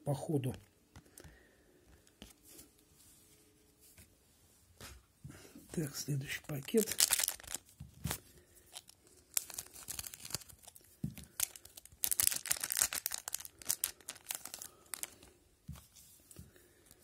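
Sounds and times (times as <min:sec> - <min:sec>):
foil wrapper crackling and tearing: 0:06.4 - 0:15.2.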